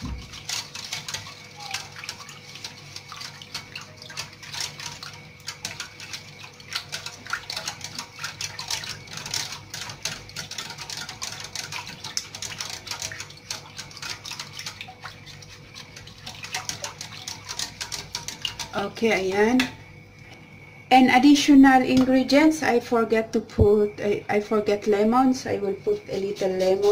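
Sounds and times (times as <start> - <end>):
whisk clicking against metal pot: 0.0 - 19.8
liquid swishing: 0.0 - 20.0.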